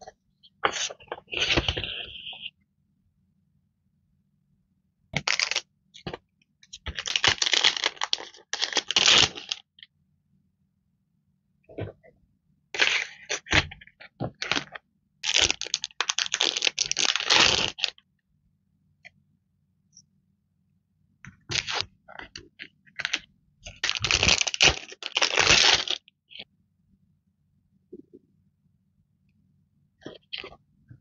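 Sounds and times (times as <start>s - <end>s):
plastic packaging crinkling: 5.2s - 5.6s, 6.9s - 9.6s, 14.4s - 18.0s, 23.0s - 26.0s.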